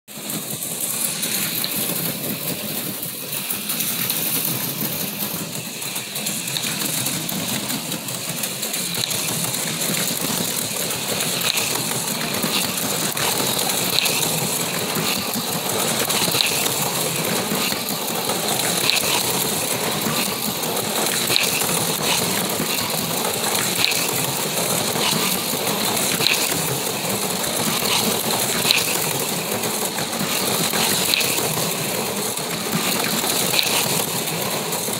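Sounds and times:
gears rattling on rails: 0:00.1 - 0:34.9
small electric motors whirring: 0:08.8 - 0:34.9.

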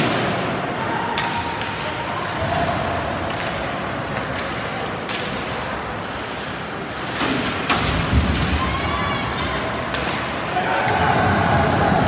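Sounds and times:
skates hissing on ice: 0:05.2 - 0:07.6.

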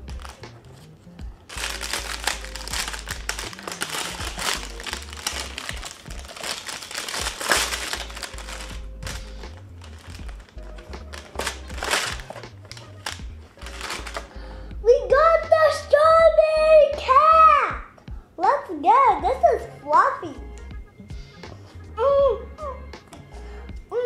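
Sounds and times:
plastic wrapper crinkling: 0:00.0 - 0:00.9, 0:01.5 - 0:14.4
background music: 0:00.0 - 0:24.0.

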